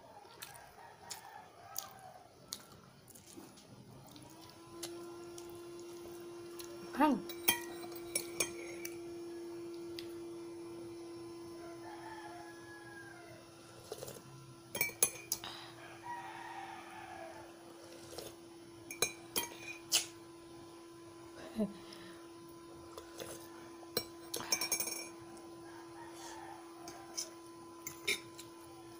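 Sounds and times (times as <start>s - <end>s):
rooster crowing: 0.0s - 2.9s, 11.3s - 13.6s, 15.6s - 17.8s, 25.2s - 28.0s
spoon clinking on dishes: 7.2s - 9.0s, 14.7s - 15.4s, 18.9s - 19.9s, 23.9s - 25.2s, 26.9s - 28.4s.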